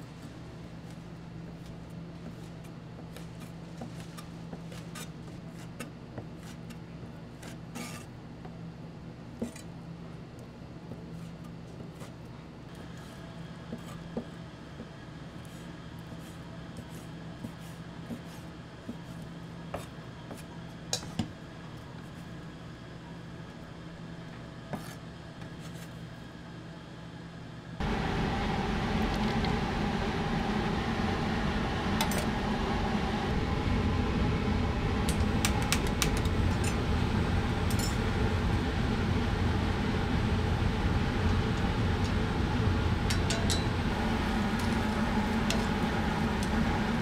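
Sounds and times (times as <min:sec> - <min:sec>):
low steady hum: 0:00.0 - 0:47.0
loud steady rushing noise: 0:27.8 - 0:47.0.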